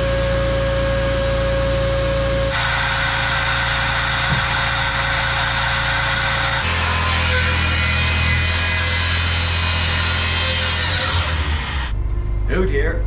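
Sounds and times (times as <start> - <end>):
small engine running: 2.5 - 12.0.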